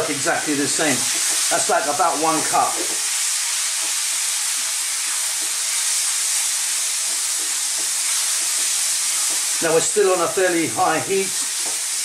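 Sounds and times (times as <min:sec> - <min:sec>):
food sizzling in a frying pan: 0:00.0 - 0:12.0
wooden spoon stirring: 0:07.0 - 0:09.7.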